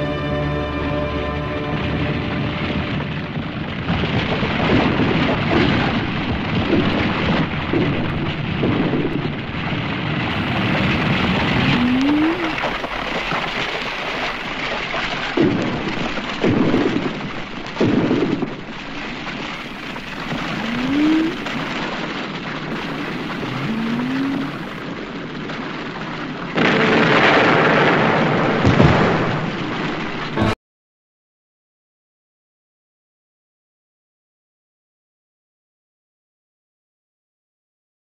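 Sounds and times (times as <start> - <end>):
loud rushing and rumbling: 10.2 - 14.2, 19.6 - 21.9, 22.7 - 24.8
short rising tone: 11.5 - 12.8, 19.8 - 21.6, 22.8 - 24.8.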